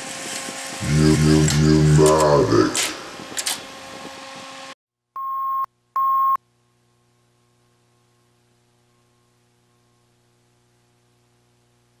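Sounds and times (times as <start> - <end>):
short high-pitched beeps: 5.2 - 6.4.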